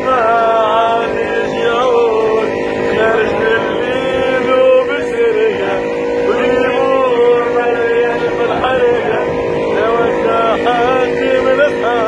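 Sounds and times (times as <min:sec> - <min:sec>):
men singing together: 0:00.0 - 0:12.0.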